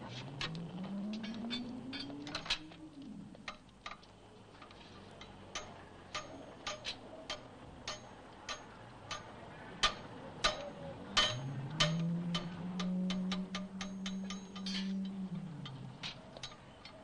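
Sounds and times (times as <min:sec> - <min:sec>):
hammer tapping on metal: 0:05.5 - 0:15.1.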